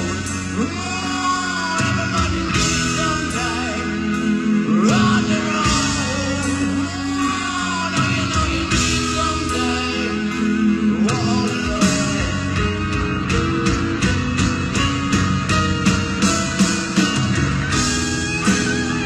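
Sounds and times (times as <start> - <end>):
man singing: 0.0 - 13.6
rock band playing slow ballad: 0.0 - 19.0.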